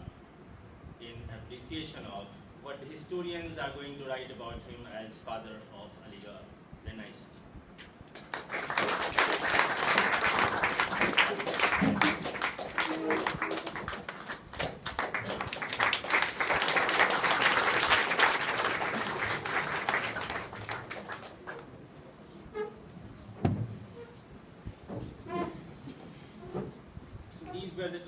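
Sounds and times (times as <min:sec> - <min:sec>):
audience applauding: 0:08.2 - 0:21.8.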